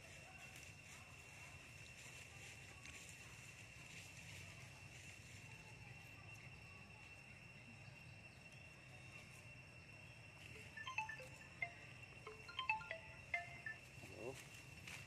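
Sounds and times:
clear tinkling notes: 10.4 - 14.4.

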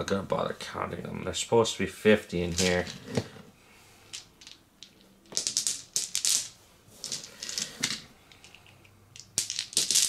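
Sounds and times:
dice clattering: 2.5 - 3.2, 4.1 - 10.0.

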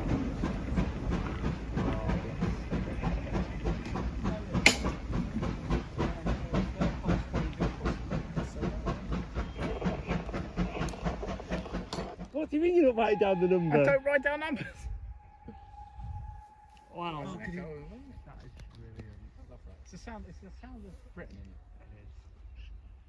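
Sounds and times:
steam hiss: 0.0 - 12.2
steam locomotive exhaust beats: 0.0 - 23.0.

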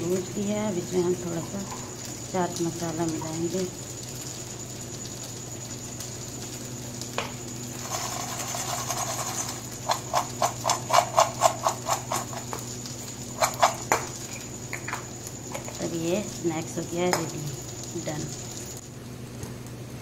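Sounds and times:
nuts rattling in a steel bowl: 7.7 - 12.6.

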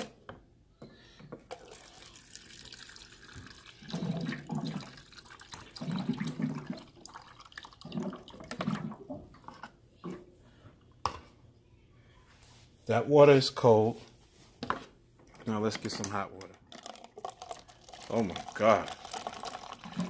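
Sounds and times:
water pouring into plastic cup: 1.5 - 9.0, 16.0 - 20.0.

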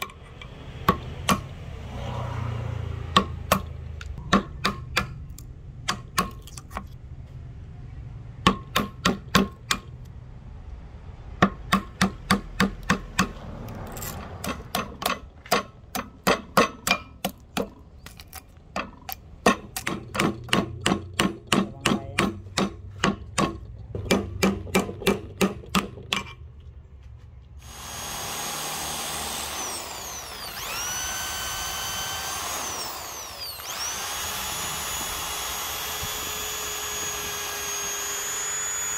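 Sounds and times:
power tool whining: 27.6 - 38.9.

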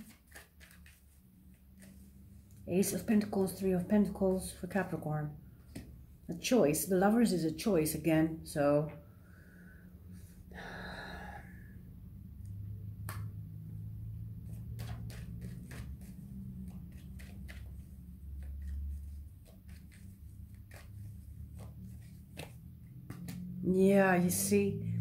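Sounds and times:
cards being shuffled: 0.0 - 3.0, 14.2 - 23.6.

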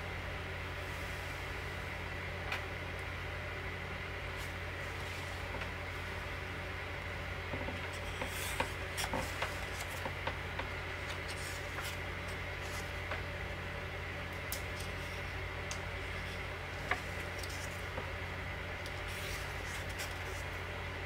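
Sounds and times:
steady low hum: 0.0 - 21.0
book pages rustling: 7.8 - 13.2, 14.6 - 18.0, 18.8 - 20.6.

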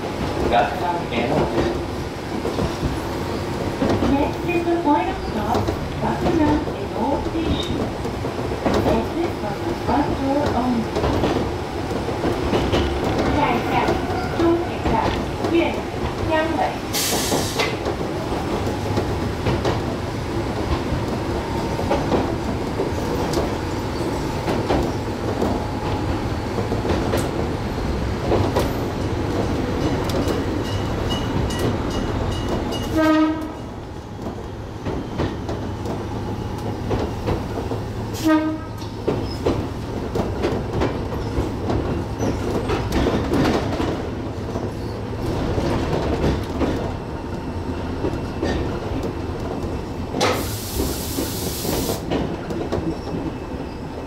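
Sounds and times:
train wheels rumbling over rails: 0.0 - 54.0
train horn toots: 32.9 - 33.7, 38.2 - 38.8.

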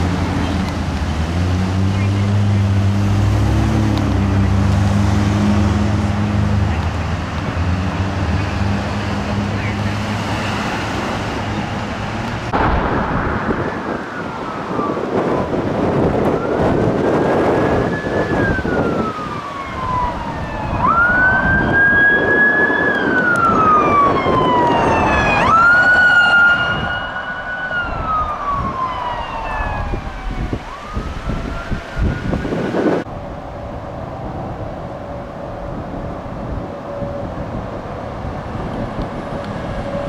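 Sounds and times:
vehicle engine and tyre noise: 0.0 - 40.0
electronic siren wailing: 12.6 - 33.0.

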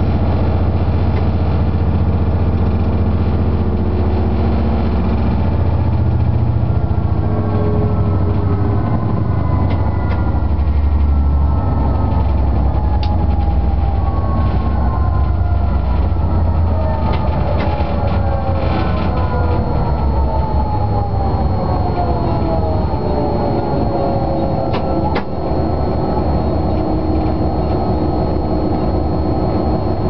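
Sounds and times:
electric train hum: 0.0 - 30.0
whine falling in pitch: 0.0 - 30.0
wheels clicking on rails: 6.0 - 22.8.

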